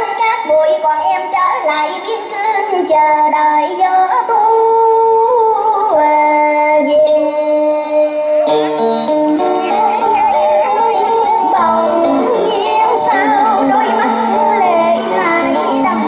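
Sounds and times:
woman singing into microphone: 0:00.0 - 0:16.0
instrumental accompaniment: 0:08.0 - 0:16.0.

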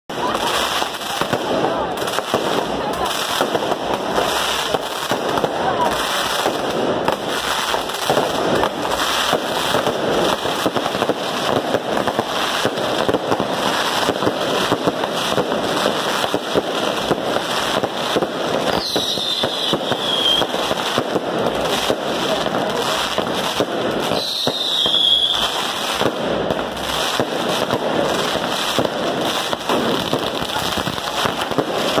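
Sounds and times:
firecrackers cracking and popping: 0:00.0 - 0:32.0
falling firework whistle: 0:18.6 - 0:20.8, 0:24.0 - 0:26.1.

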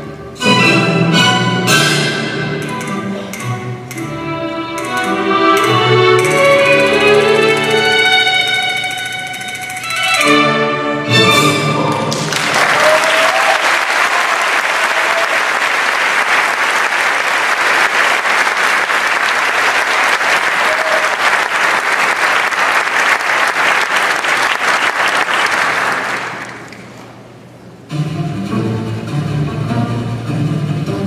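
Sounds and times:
audience applauding: 0:11.9 - 0:27.0.

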